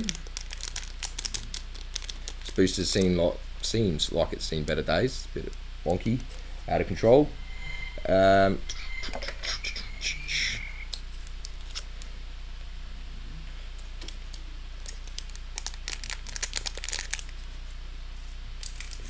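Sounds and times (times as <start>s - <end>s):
foil pack crinkling: 0.0s - 3.1s, 14.0s - 17.6s, 18.6s - 19.0s.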